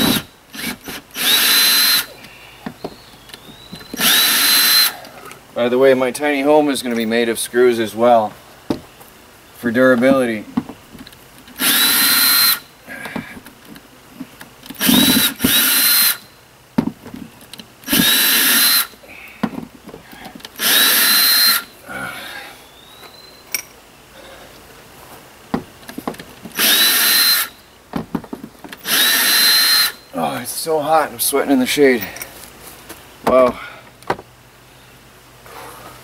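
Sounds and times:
cordless drill whining: 0:00.0 - 0:02.1, 0:03.8 - 0:05.0, 0:11.6 - 0:12.7, 0:14.8 - 0:16.3, 0:17.8 - 0:18.9, 0:20.6 - 0:21.7, 0:26.5 - 0:27.6, 0:28.8 - 0:30.1.

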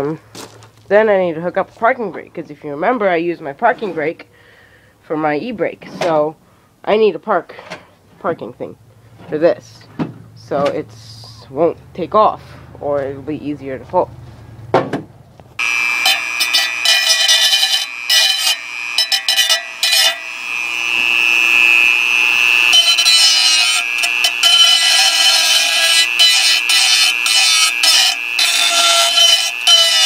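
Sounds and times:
rotary tool grinding metal: 0:15.6 - 0:30.0.

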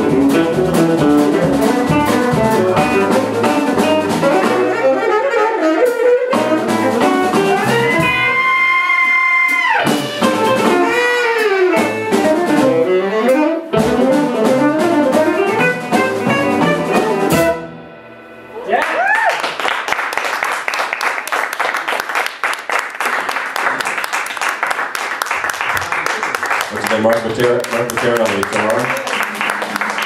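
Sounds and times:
jazz fusion band playing: 0:00.0 - 0:18.6
saxophone lead line: 0:00.0 - 0:18.6.

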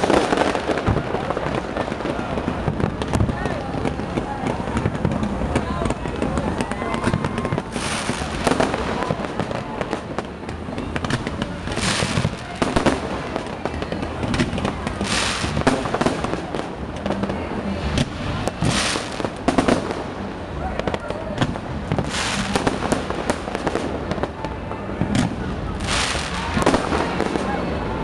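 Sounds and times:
fireworks bangs and crackles: 0:00.0 - 0:28.0
hissing crackle bursts: 0:11.0 - 0:20.5.

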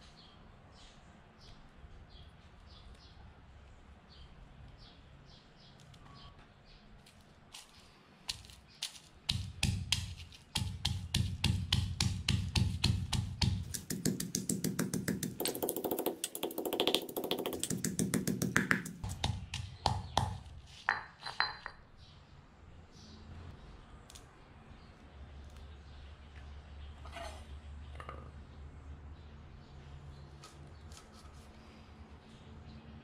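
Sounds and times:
pestle pounding in stone mortar: 0:09.3 - 0:21.7.

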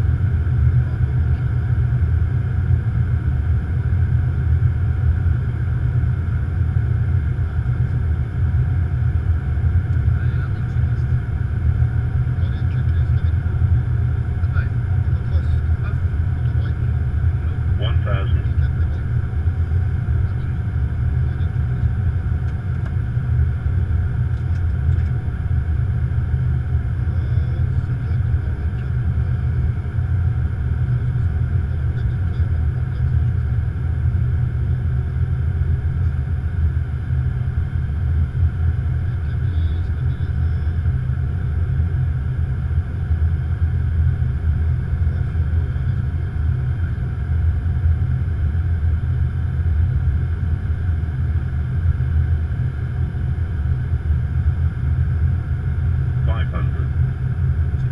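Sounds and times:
cockpit airflow and engine rumble: 0:00.0 - 0:57.9.

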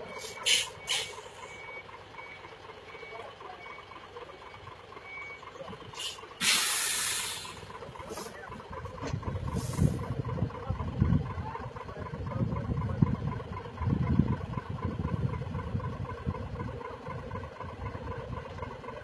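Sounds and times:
truck reverse alarm beeping: 0:00.0 - 0:10.5
truck engine running: 0:00.0 - 0:19.0
air brakes hissing: 0:00.1 - 0:01.5, 0:05.9 - 0:08.4, 0:09.5 - 0:10.1
short puffs of air: 0:00.2 - 0:01.2, 0:06.0 - 0:08.3.

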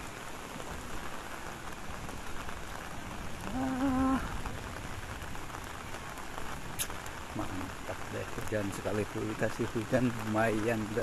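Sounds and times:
steady rain: 0:00.0 - 0:11.0.

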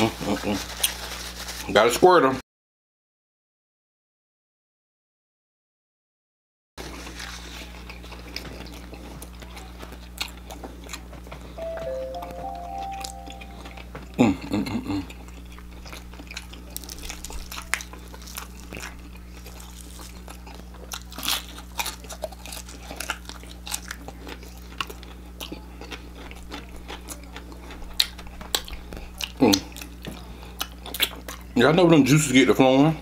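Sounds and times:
crunching fried chicken: 0:00.0 - 0:02.0, 0:06.8 - 0:11.6, 0:14.5 - 0:32.9.

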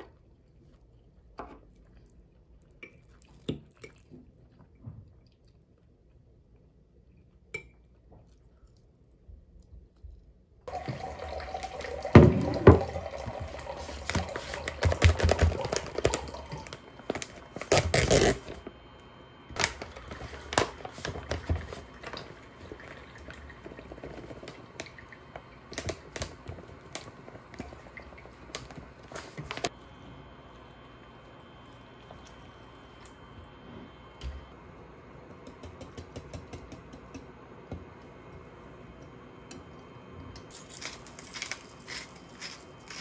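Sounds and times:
powder pouring into glass jug: 0:10.7 - 0:17.4
plastic bag rustling: 0:13.1 - 0:18.7, 0:19.6 - 0:23.1.

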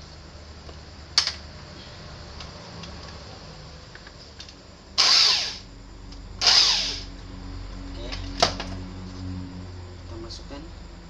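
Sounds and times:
cordless drill driving screw: 0:05.0 - 0:05.6, 0:06.4 - 0:07.0.

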